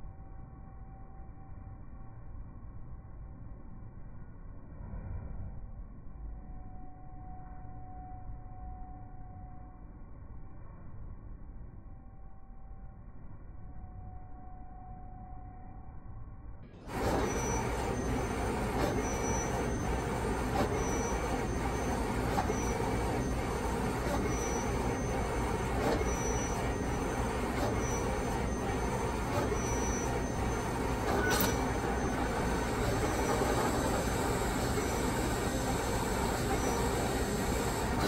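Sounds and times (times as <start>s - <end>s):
printer carriage whirring: 16.8s - 38.0s.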